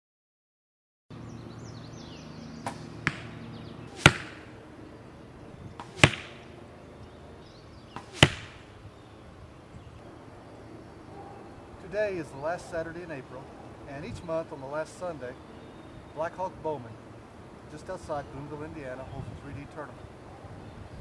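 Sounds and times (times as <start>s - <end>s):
arrows thudding into foam target: 2.6s - 4.6s, 5.8s - 6.4s, 8.0s - 8.7s
bow shot snap: 2.6s - 4.6s, 5.8s - 6.4s, 8.0s - 8.7s.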